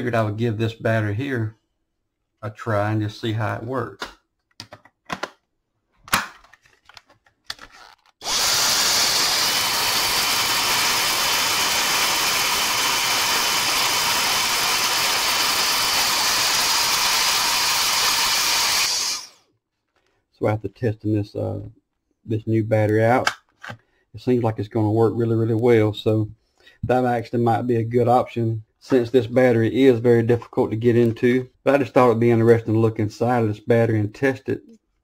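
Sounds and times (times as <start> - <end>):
handheld vacuum running: 8.2 - 19.4.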